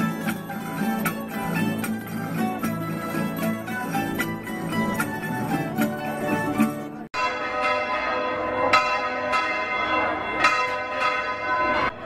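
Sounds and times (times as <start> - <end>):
plucked-string music: 0.0 - 7.1
church bells ringing: 0.0 - 12.0.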